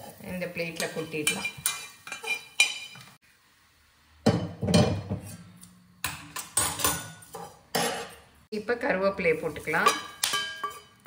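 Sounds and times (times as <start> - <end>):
kitchen utensils clinking: 0.0 - 3.2, 6.0 - 8.2, 9.6 - 11.0
metal pan clanking on grate: 6.0 - 8.2, 9.8 - 11.0.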